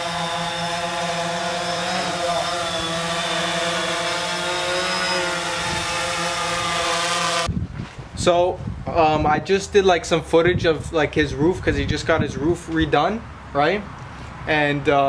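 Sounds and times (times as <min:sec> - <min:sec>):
drone propellers whining: 0:00.0 - 0:07.5.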